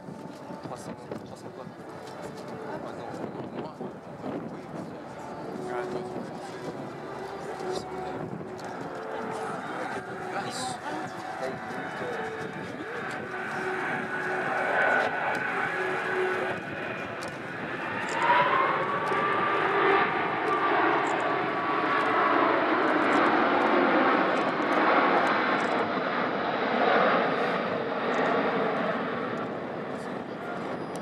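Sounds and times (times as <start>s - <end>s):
jet airliner flying overhead: 0.0s - 31.0s.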